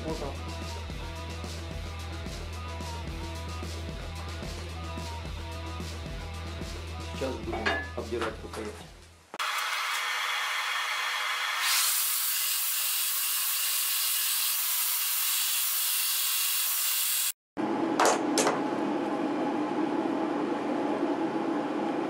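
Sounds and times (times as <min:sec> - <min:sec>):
belt grinder grinding wood: 0:09.4 - 0:17.4.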